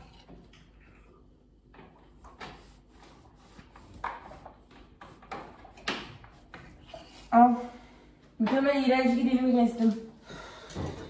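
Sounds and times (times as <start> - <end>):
objects knocking and scraping: 1.6 - 7.1.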